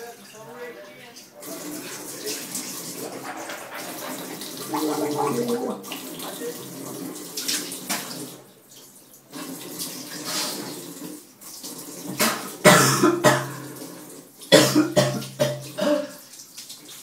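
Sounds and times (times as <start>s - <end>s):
water running into a sink: 1.3s - 17.0s
man coughing hard: 12.7s - 13.6s, 14.5s - 16.2s.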